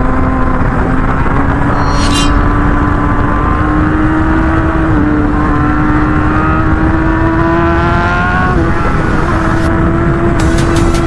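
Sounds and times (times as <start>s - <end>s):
heavy low rumble: 0.7s - 5.6s.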